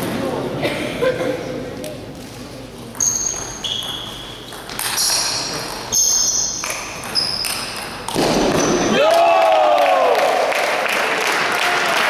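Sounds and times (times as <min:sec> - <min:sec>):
table tennis ball pinging: 0:02.9 - 0:08.9.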